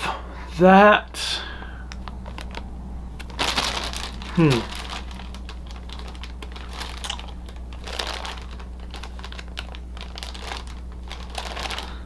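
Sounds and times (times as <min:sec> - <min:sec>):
plastic bags crinkling: 0:02.2 - 0:02.6, 0:03.2 - 0:12.0.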